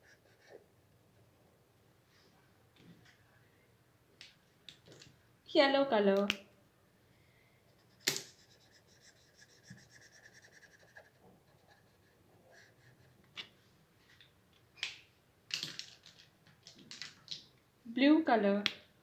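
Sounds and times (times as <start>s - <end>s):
marker scribbling on paper: 7.8s - 13.2s.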